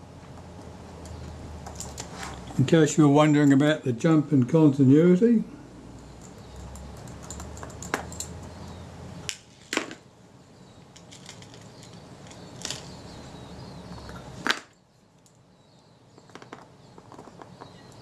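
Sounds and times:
low steady hum: 0.0s - 18.0s
small metal tools clicking: 6.2s - 8.4s.

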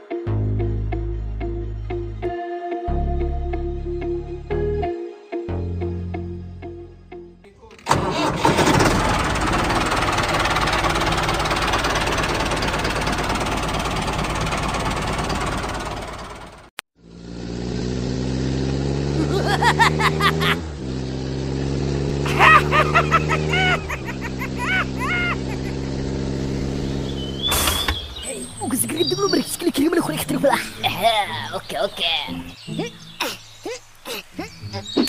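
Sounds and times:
tractor engine running rough: 7.8s - 19.2s, 20.3s - 28.0s
low engine hum: 8.0s - 35.0s.

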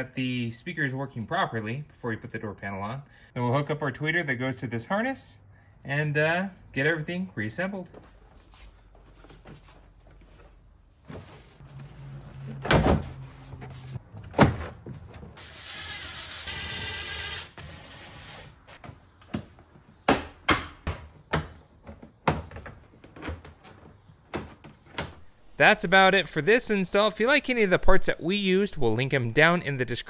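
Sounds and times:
cordless drill running: 15.4s - 18.5s.

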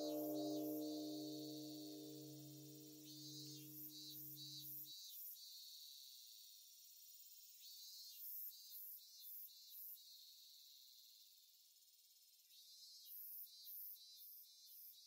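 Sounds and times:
cicadas chirring: 0.0s - 1.3s
low held music chord: 0.0s - 2.3s.

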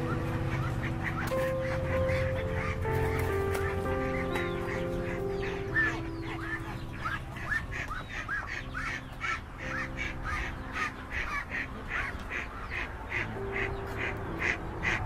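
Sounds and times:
ducks quacking: 0.0s - 15.0s.

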